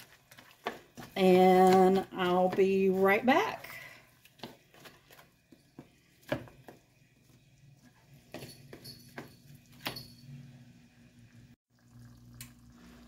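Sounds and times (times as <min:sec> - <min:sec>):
plastic spoon scraping a skillet: 0:00.0 - 0:06.7.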